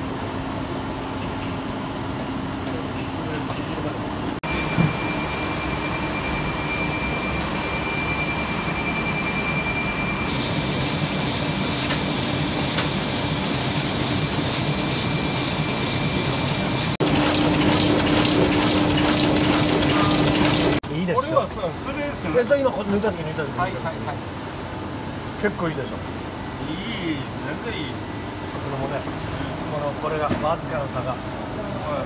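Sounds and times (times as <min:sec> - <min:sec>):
printing press running: 0:10.3 - 0:20.8.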